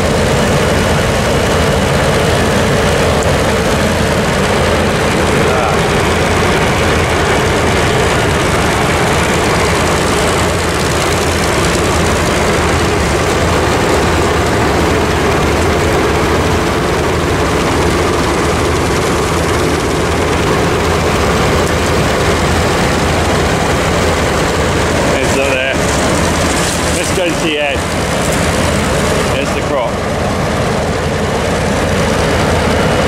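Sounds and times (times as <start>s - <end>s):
farm machinery engine drone: 0.0s - 33.0s.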